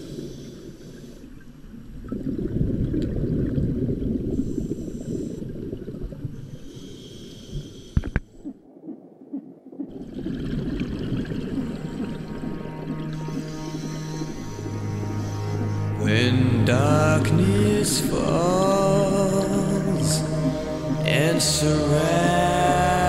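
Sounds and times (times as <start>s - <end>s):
regulator bubbles underwater: 1.4s - 6.7s, 8.1s - 23.0s
water moving past camera: 7.9s - 23.0s.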